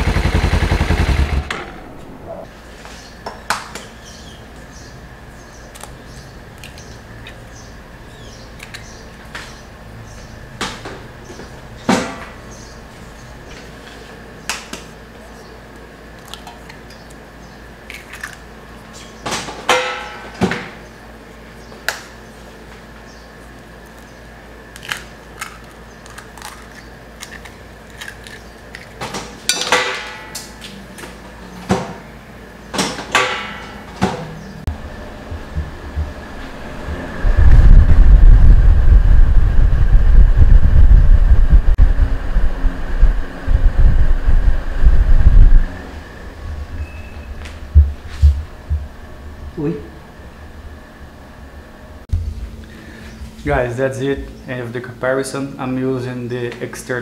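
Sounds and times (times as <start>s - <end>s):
low hum: 0.0s - 3.2s, 33.2s - 54.5s.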